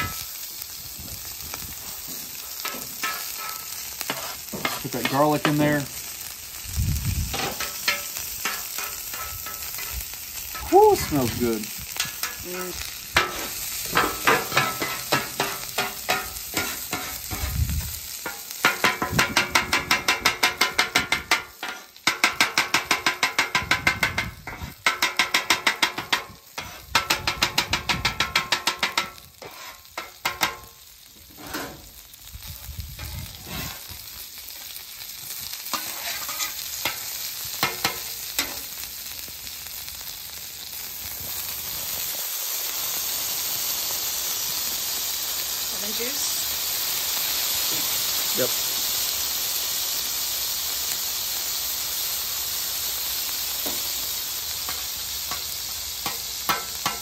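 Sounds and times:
butter and garlic sizzling: 0.0 - 57.0
metal scraper tapping griddle: 2.6 - 5.6, 7.4 - 9.9, 13.2 - 17.5, 18.2 - 30.7, 37.6 - 38.6, 56.0 - 57.0.

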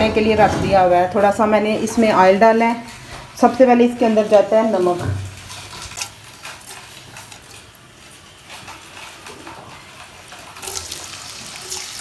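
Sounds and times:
hot oil sizzling and crackling: 3.8 - 12.0.

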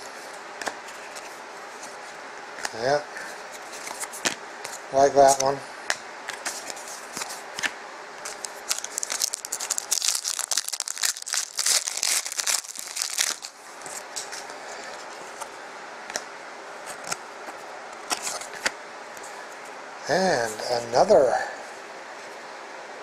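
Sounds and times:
card pack wrapper crinkling: 6.4 - 14.4.

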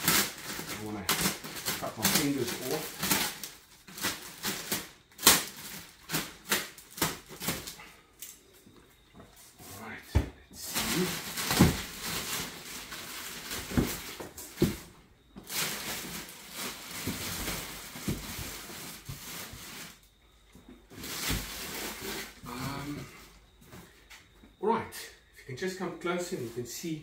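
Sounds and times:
plastic wrapping crinkling: 0.0 - 7.8, 10.6 - 20.1.

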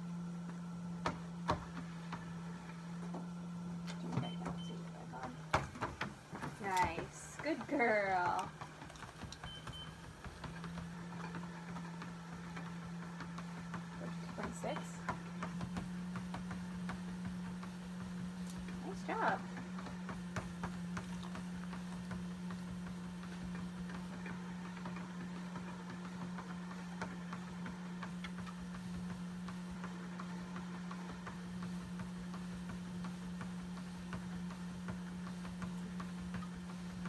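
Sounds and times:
treadmill motor humming: 0.0 - 37.0.

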